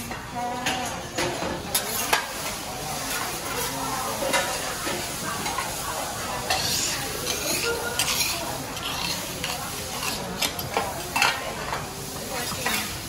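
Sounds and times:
food sizzling on griddle: 0:00.0 - 0:13.0
metal spatulas scraping and clinking: 0:00.7 - 0:02.4, 0:06.4 - 0:11.8.

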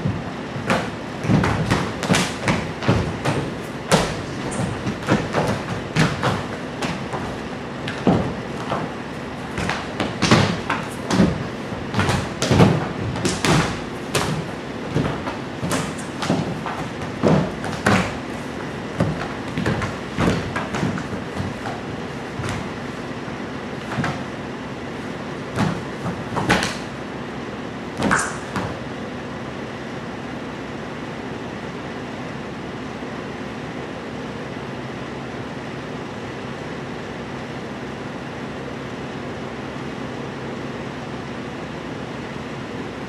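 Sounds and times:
body thumping on wooden floor: 0:00.0 - 0:22.9, 0:23.8 - 0:24.3, 0:25.5 - 0:26.9, 0:28.0 - 0:28.8
room noise hiss: 0:00.0 - 0:43.0.

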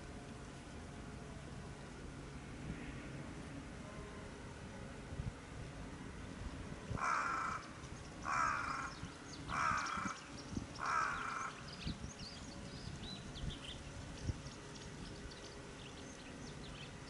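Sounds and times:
small birds chirping faintly: 0:06.9 - 0:17.0
crow cawing: 0:07.0 - 0:10.2, 0:10.8 - 0:11.6.

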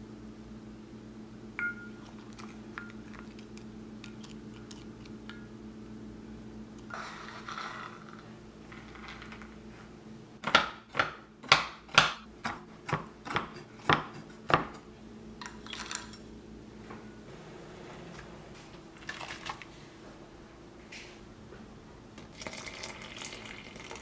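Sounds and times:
knife chopping on wooden board: 0:10.4 - 0:14.8.

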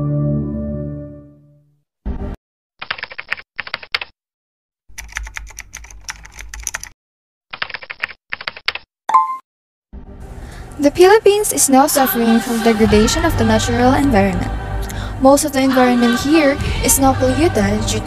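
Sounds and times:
deep musical sting: 0:12.6 - 0:15.8.

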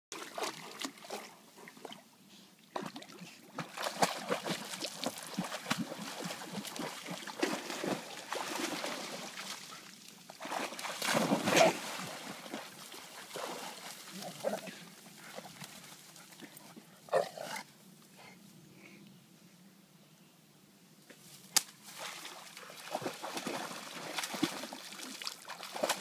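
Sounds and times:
dogs splashing through water: 0:00.2 - 0:02.0, 0:02.7 - 0:16.6, 0:21.9 - 0:26.0.

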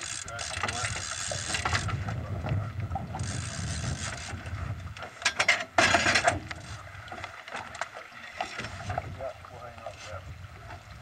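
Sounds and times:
fishing reel clicking: 0:00.0 - 0:02.0, 0:03.2 - 0:04.4.

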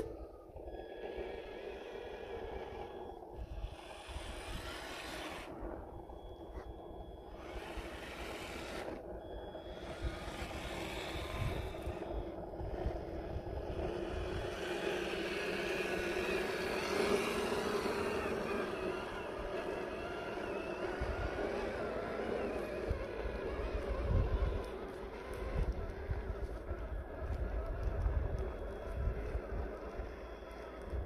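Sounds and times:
electric motor whining: 0:00.0 - 0:31.0
wind on microphone: 0:22.9 - 0:24.8.

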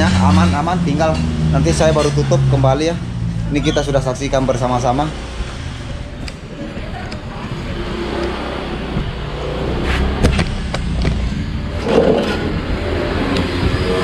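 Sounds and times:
steady low rumble: 0:00.0 - 0:13.9
rubbing and scraping on microphone: 0:11.1 - 0:12.6.

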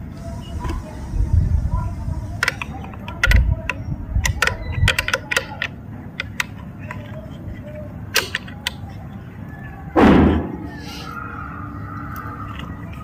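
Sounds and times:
pliers clicking on metal: 0:08.1 - 0:08.8.

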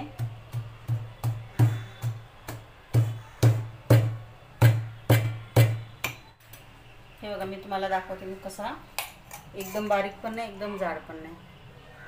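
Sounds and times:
pestle pounding in a mortar: 0:00.0 - 0:06.2.

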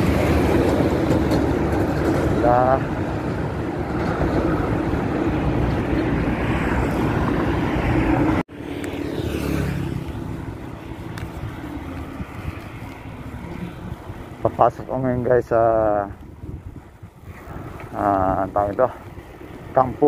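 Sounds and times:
road traffic passing: 0:00.0 - 0:20.0.

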